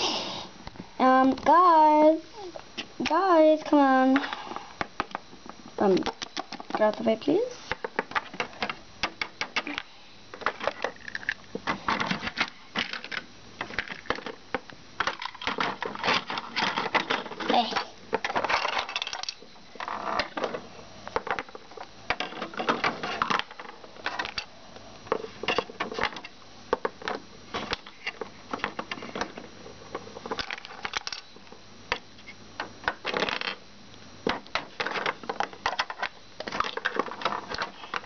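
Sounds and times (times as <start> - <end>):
plastic toy pieces clattering: 15.0 - 20.6, 34.8 - 38.0.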